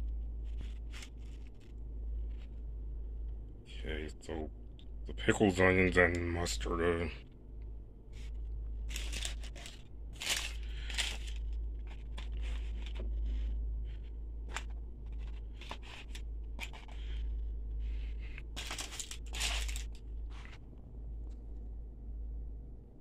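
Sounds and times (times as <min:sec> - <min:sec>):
paper wrapper crinkling: 0:00.4 - 0:02.5, 0:08.2 - 0:20.6.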